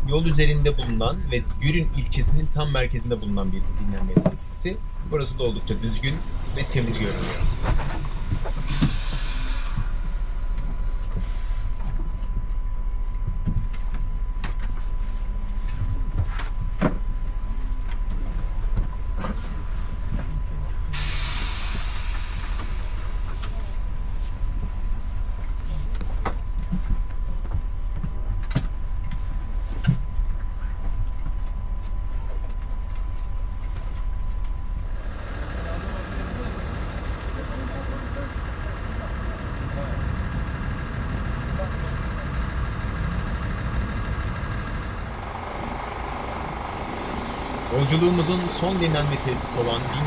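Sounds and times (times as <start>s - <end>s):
diesel engine idling: 0.0s - 13.0s, 18.4s - 29.8s, 33.4s - 50.0s
compressed air hiss: 8.6s - 10.0s, 21.0s - 23.7s.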